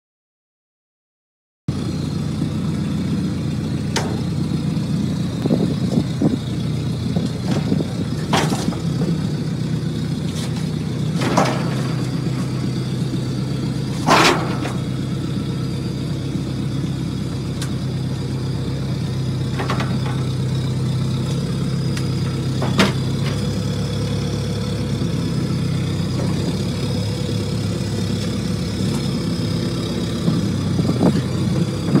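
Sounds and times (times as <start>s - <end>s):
diesel engine running: 1.7s - 32.0s
sharp clicks and knocks: 3.9s - 4.4s, 7.2s - 9.2s.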